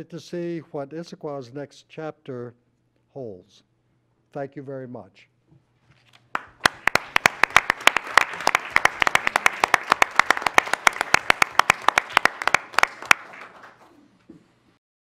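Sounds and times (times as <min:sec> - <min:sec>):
sharp claps close by: 0:06.4 - 0:13.8
audience applauding: 0:06.4 - 0:14.0.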